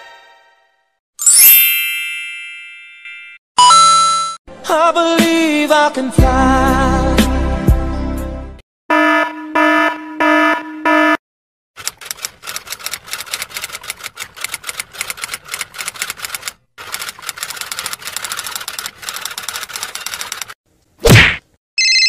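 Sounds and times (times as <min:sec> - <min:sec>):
electronic alarm beeping: 0:08.9 - 0:11.2
typewriter keys clacking: 0:11.8 - 0:20.6.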